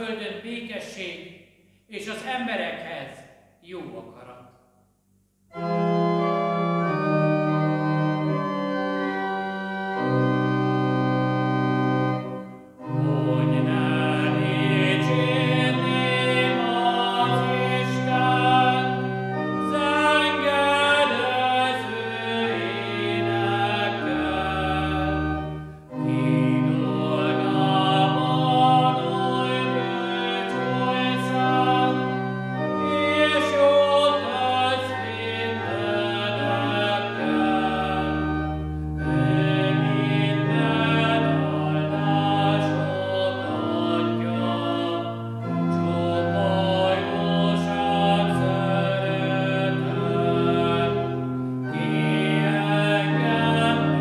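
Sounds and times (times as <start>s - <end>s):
organ chords: 5.2s - 54.0s
man singing a chant: 13.2s - 19.0s, 19.6s - 25.2s.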